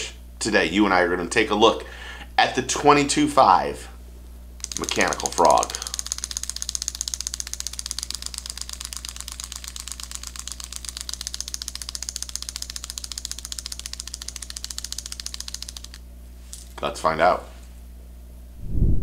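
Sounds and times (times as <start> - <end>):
spring mechanism ticking rapidly: 4.6 - 16.0.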